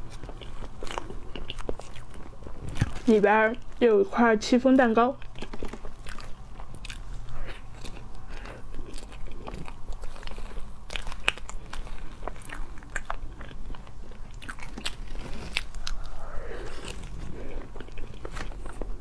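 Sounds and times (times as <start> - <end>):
wet chewing: 0.0 - 3.9, 4.8 - 19.0.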